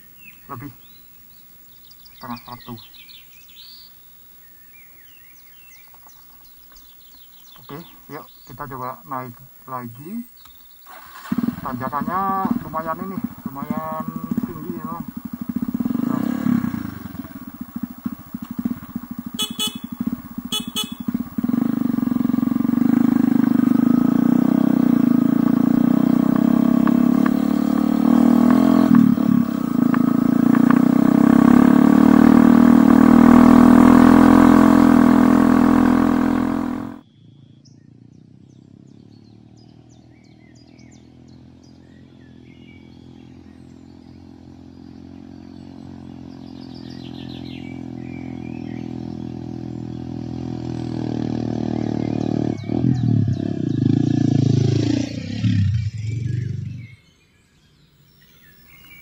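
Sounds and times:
faint bird chirps: 0:00.0 - 0:50.8, 0:51.4 - 0:59.0
motorcycle engine under load: 0:10.4 - 0:37.0, 0:41.1 - 0:57.0
sharp clicks: 0:17.8 - 0:18.9, 0:29.9 - 0:30.9.

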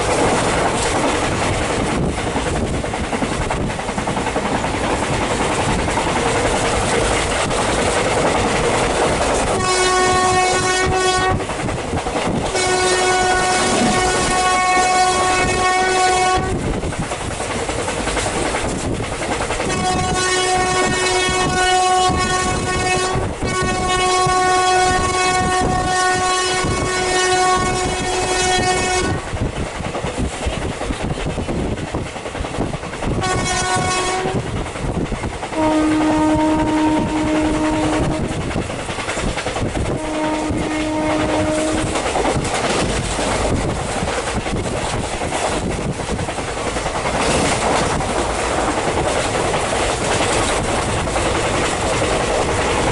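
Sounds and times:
train coach rumble and wheel clatter: 0:00.0 - 0:52.9
train horn blasts: 0:09.5 - 0:11.5, 0:12.5 - 0:16.6, 0:19.6 - 0:29.4, 0:33.2 - 0:34.5, 0:35.6 - 0:38.4, 0:39.9 - 0:42.0.

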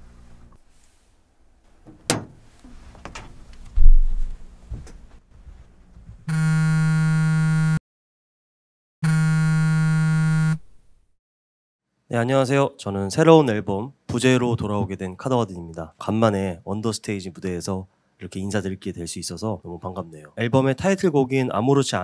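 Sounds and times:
heavy low thump: 0:01.9 - 0:02.4, 0:03.0 - 0:05.0.

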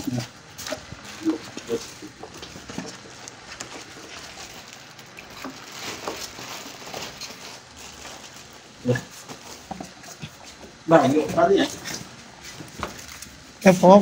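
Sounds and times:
styrofoam squeaking and rubbing: 0:03.8 - 0:09.5.

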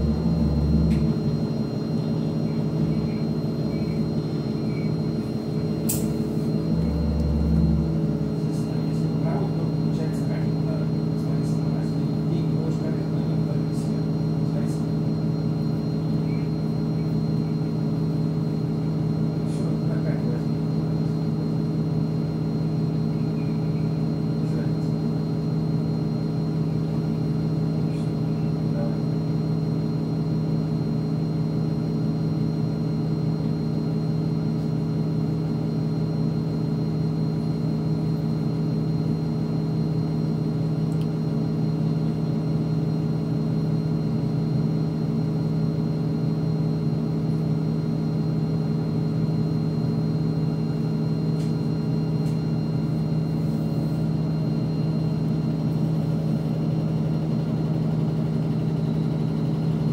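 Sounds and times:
bus engine idling: 0:00.0 - 0:21.7.

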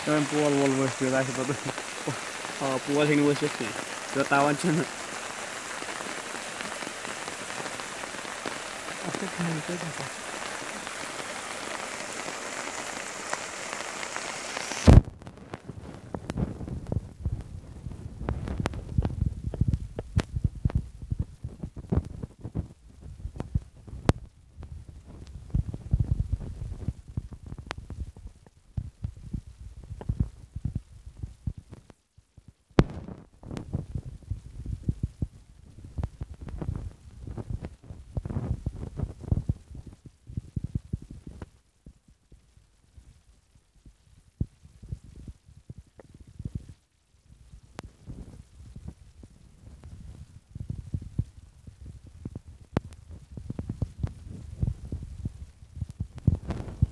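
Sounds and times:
rain hissing: 0:00.0 - 0:56.9
wind knocking on microphone: 0:14.8 - 0:41.5, 0:47.8 - 0:56.9.

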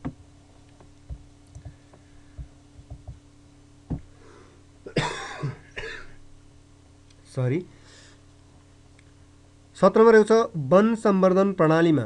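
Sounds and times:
soft low thumps: 0:00.0 - 0:04.2
low electrical hum: 0:00.0 - 0:12.0
person coughing: 0:04.8 - 0:06.2.

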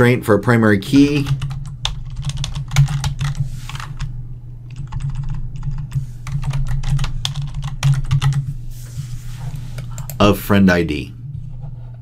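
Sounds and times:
steady low hum: 0:00.0 - 0:12.0
typing on computer keyboard: 0:01.3 - 0:03.9, 0:04.7 - 0:08.4.

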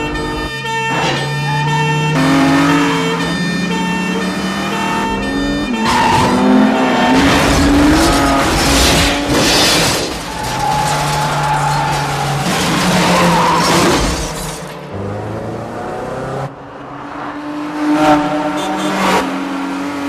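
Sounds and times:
two-tone police siren: 0:00.0 - 0:08.6
engines revving: 0:00.0 - 0:20.0
tires screeching: 0:00.0 - 0:20.0
car crash: 0:05.8 - 0:14.9.

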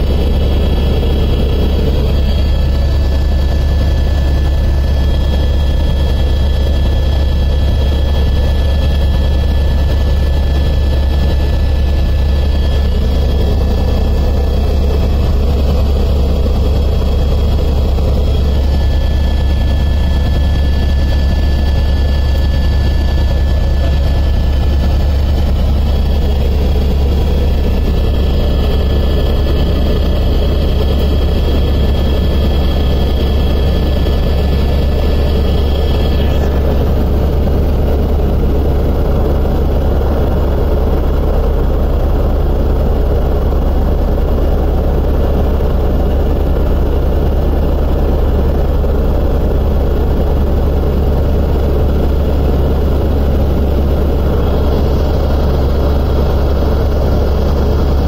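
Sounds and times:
helicopter drone from cabin: 0:00.0 - 0:58.0
thin high whine: 0:30.8 - 0:38.1.

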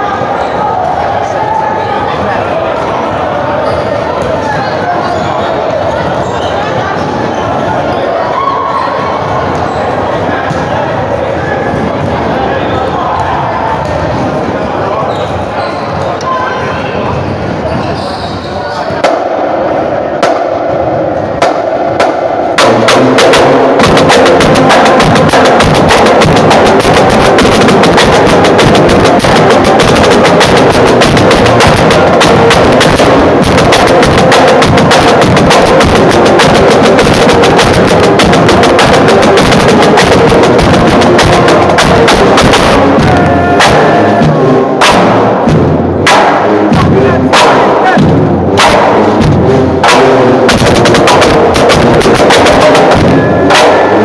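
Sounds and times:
loud busy drum beat: 0:19.0 - 0:54.0
marching band brass and saxophones: 0:21.6 - 0:54.0.

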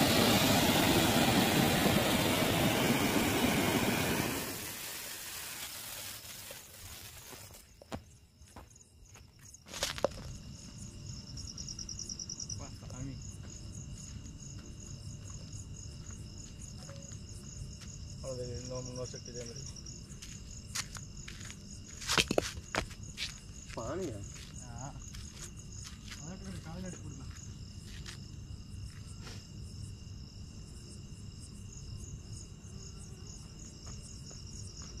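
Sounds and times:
crickets chirping: 0:00.0 - 0:35.0.

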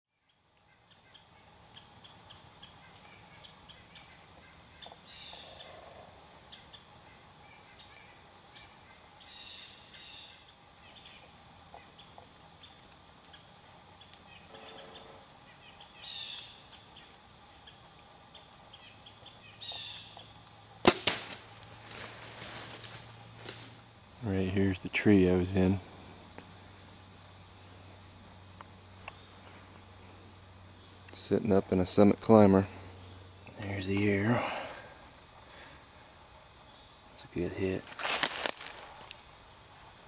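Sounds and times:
bow release snap: 0:20.8 - 0:21.5
crunches and rustles: 0:20.9 - 0:23.8, 0:37.8 - 0:39.2.

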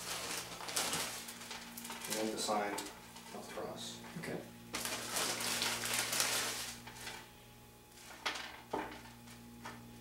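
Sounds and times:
plastic bag crinkling: 0:00.0 - 0:02.7, 0:04.7 - 0:07.3
steady low hum: 0:00.0 - 0:10.0.

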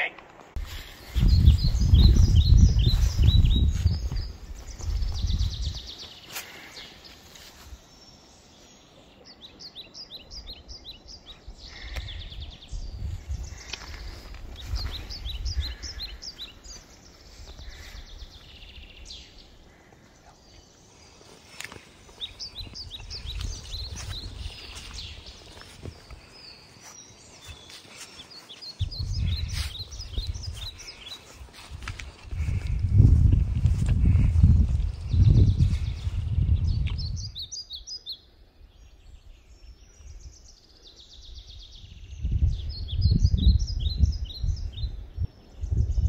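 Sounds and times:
small birds chirping: 0:00.0 - 0:46.0
small bird chirping: 0:20.2 - 0:31.4.

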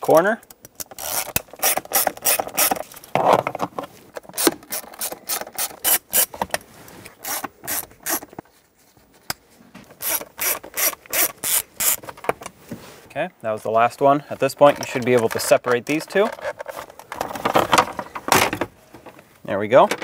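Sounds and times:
hand ratchet clicking: 0:00.8 - 0:02.8, 0:10.0 - 0:12.0.

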